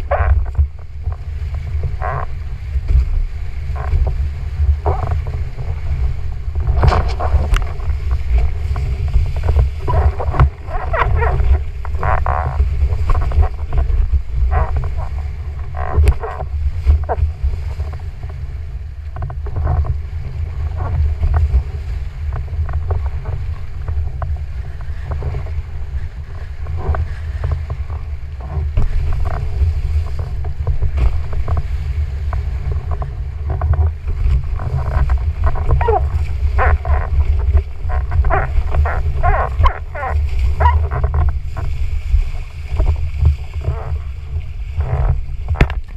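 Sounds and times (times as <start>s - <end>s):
water rushing and splashing: 0.0s - 45.9s
wind buffeting microphone: 0.0s - 45.9s.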